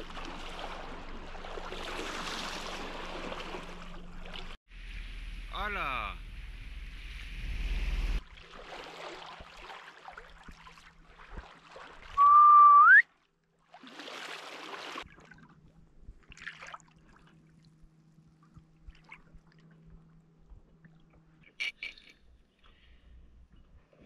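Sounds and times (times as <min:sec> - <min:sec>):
water noise: 0:00.0 - 0:22.8
wind: 0:00.0 - 0:24.0
whistled note: 0:12.2 - 0:13.0.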